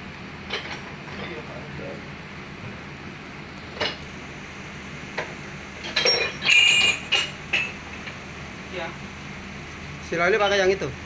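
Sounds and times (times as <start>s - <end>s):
metal pump parts clinking: 5.8s - 8.1s.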